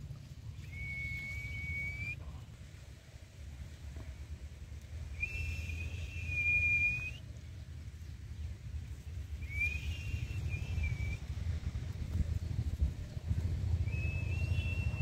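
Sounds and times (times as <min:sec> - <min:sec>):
low rumble: 0:00.0 - 0:15.0
long whistled notes: 0:00.6 - 0:02.2, 0:05.2 - 0:07.2, 0:09.4 - 0:11.2, 0:13.8 - 0:15.0.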